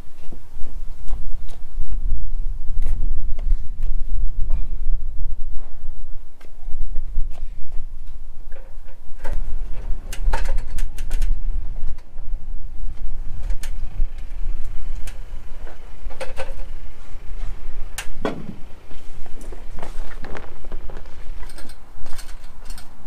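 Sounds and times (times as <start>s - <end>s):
steady low rumble: 0.0s - 23.0s
plastic sheet bumping and flexing: 12.9s - 22.6s
heavy knock: 18.2s - 18.6s.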